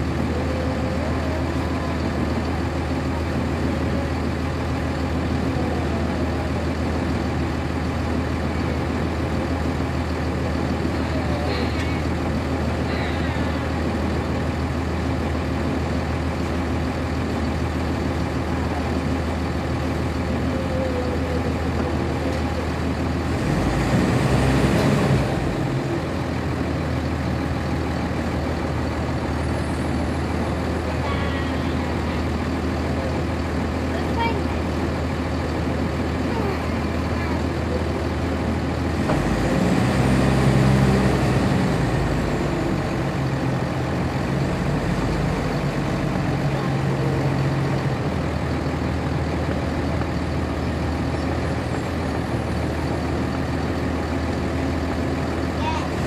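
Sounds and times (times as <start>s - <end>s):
bus diesel engine droning: 0.0s - 56.0s.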